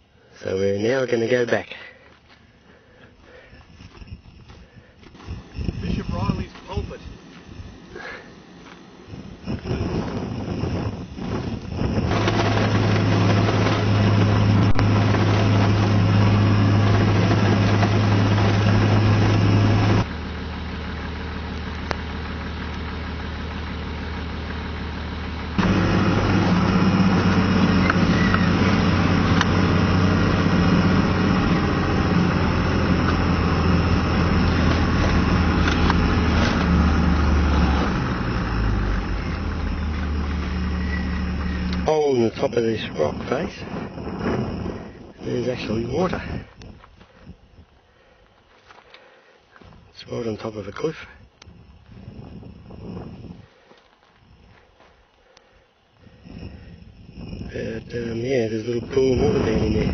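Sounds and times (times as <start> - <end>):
tyre and road rumble: 1.6 - 48.9
vehicle engine drone: 2.0 - 59.9.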